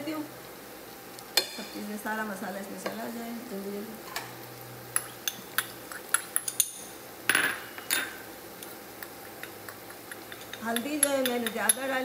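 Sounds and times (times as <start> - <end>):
light clinks and taps on a pot: 9.0 - 12.0.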